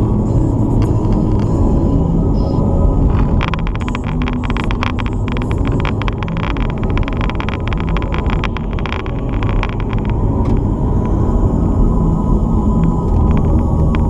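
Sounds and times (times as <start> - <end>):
car engine and road rumble: 0.0 - 14.0
rattle of clicks: 3.0 - 11.2, 12.8 - 14.0.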